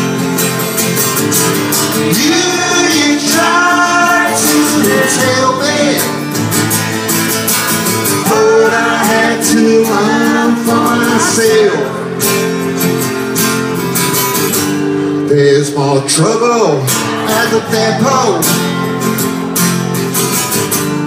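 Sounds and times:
acoustic guitar: 0:00.0 - 0:21.0
resonator guitar: 0:00.0 - 0:21.0
person singing: 0:02.0 - 0:06.2, 0:08.2 - 0:12.2.

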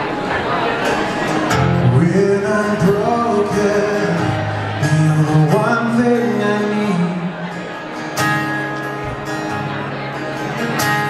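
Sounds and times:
acoustic guitar music: 0:00.0 - 0:11.0
man singing wordless melody: 0:01.8 - 0:07.4.

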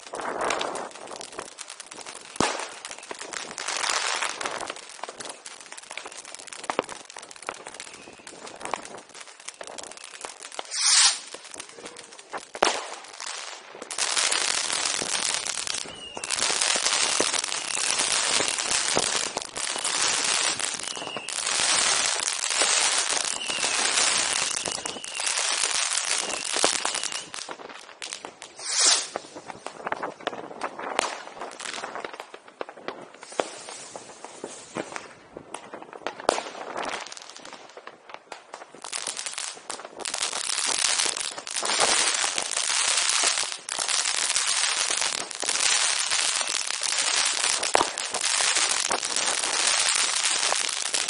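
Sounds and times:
firecrackers crackling: 0:00.0 - 0:51.0
brief hiss: 0:10.7 - 0:11.2, 0:28.6 - 0:29.2.

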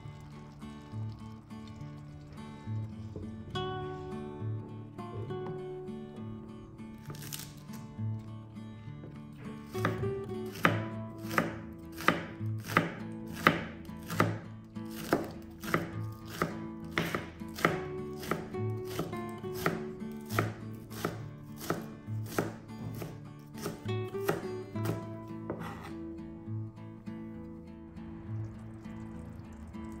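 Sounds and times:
knife chopping on cutting board: 0:09.6 - 0:26.0.

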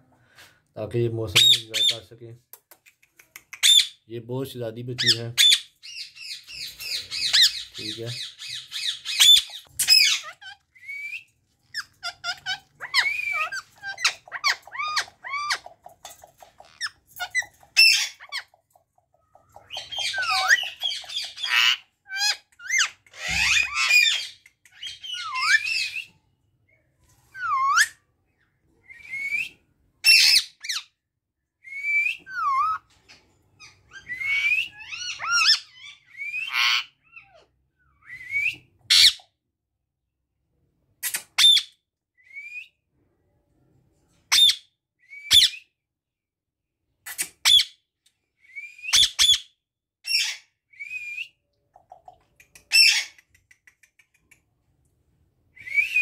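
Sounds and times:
parakeets squawking and whistling: 0:05.0 - 0:18.6, 0:19.4 - 0:26.2, 0:33.6 - 0:37.4, 0:52.7 - 0:53.2.

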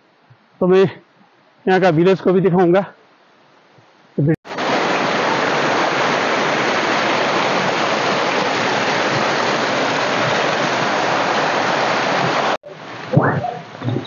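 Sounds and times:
waterfall splashing over rocks: 0:04.5 - 0:14.0.

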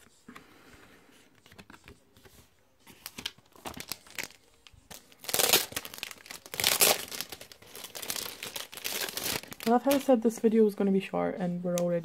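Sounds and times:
packaging crinkling: 0:02.9 - 0:10.2.

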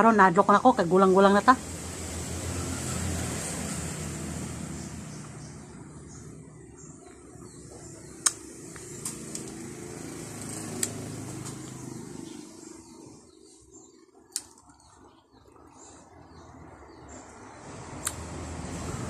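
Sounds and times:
sharp wet mouth clicks: 0:08.2 - 0:08.5.

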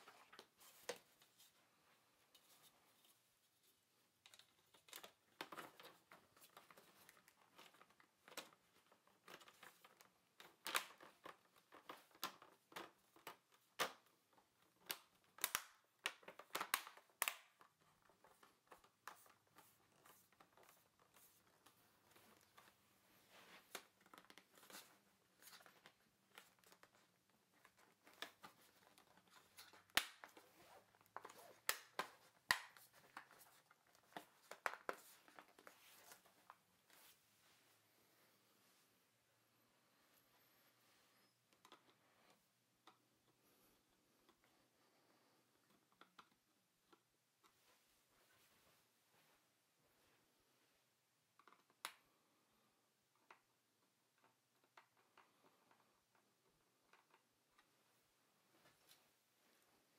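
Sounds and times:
plastic crackles: 0:04.2 - 0:37.2
plastic clips snapping: 0:14.8 - 0:17.7.

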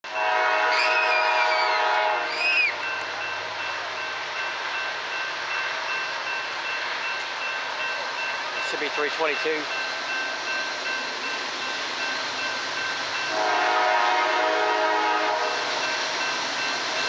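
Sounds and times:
locomotive air horn: 0:00.0 - 0:02.7, 0:13.3 - 0:15.8
train rumbling: 0:00.0 - 0:17.0.

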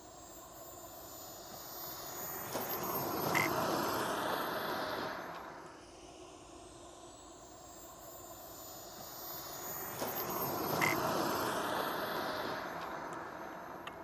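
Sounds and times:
model jet turbine whine: 0:00.0 - 0:14.0.

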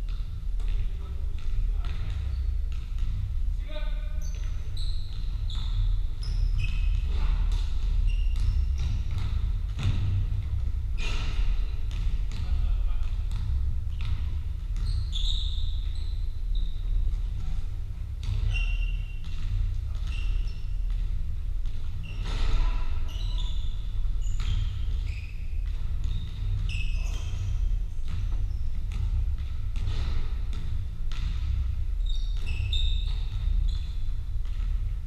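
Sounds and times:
basketballs bouncing on wooden floor: 0:00.0 - 0:35.0
steady low rumble: 0:00.0 - 0:35.0
shoes squeaking on court: 0:04.2 - 0:10.2, 0:14.0 - 0:34.8.

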